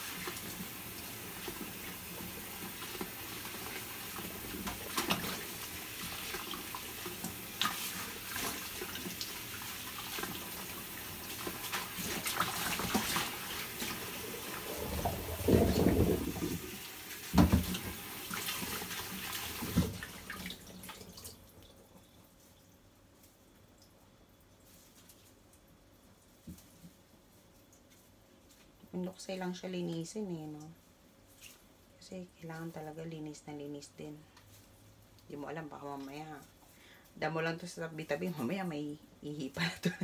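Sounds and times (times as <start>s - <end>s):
tap running into basin: 0.0s - 21.4s
hands swishing in water: 11.7s - 16.7s
thumps: 14.7s - 16.7s
small splashes and clicks: 23.2s - 28.8s.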